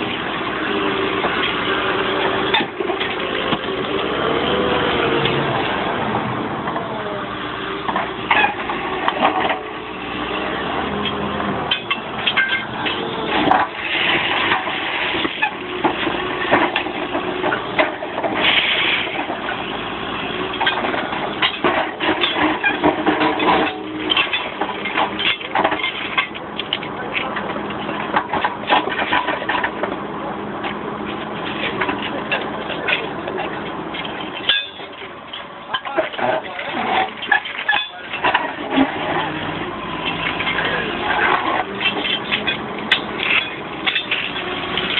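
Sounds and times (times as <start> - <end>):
machinery engine noise: 0.0 - 44.9
knocks and clatter: 7.8 - 9.8, 11.0 - 19.7, 20.4 - 30.0, 30.6 - 44.9.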